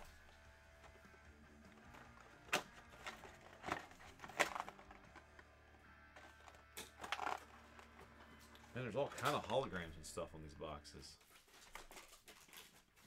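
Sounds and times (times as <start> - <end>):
cardboard box crackling and rustling: 1.8 - 5.4.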